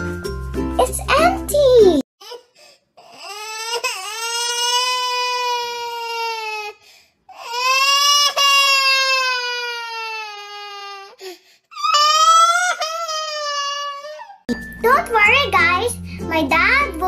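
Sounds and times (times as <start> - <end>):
child crying in wails: 2.2 - 14.5.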